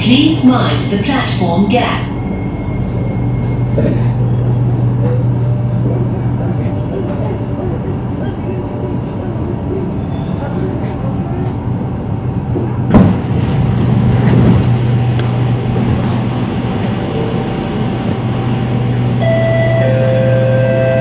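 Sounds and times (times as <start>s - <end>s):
train carriage hum: 0.0s - 21.0s
train doors sliding open: 2.9s - 5.8s, 12.3s - 17.4s.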